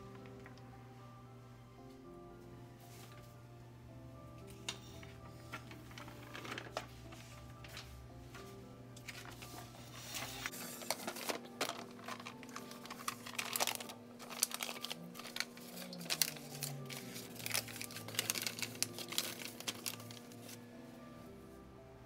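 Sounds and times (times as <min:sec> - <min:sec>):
baking paper crinkling: 0:04.8 - 0:08.0, 0:09.0 - 0:20.6.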